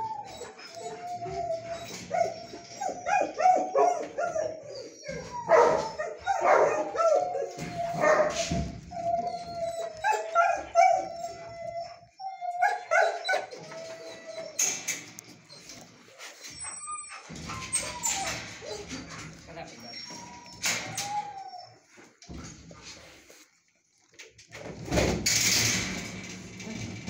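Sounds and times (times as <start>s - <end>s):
dog yelps or barks: 0.0s - 14.8s, 16.5s - 18.9s
dog whining and yipping: 0.0s - 22.0s.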